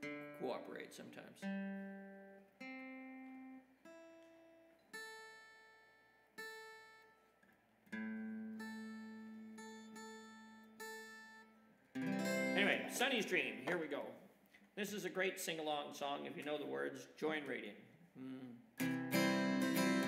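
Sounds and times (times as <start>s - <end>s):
acoustic guitar strings plucked: 12.0s - 13.9s, 18.2s - 20.0s.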